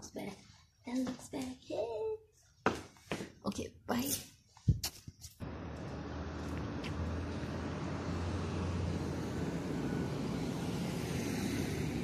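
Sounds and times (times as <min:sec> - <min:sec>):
road noise: 0:05.4 - 0:12.0
vehicle engine hum: 0:05.4 - 0:12.0.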